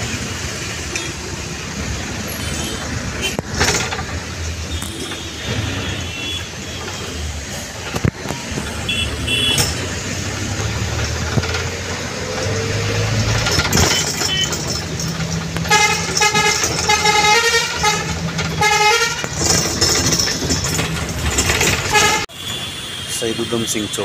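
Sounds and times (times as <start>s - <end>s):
traffic engines running: 0.0s - 24.0s
car horn short blasts: 8.6s - 9.8s.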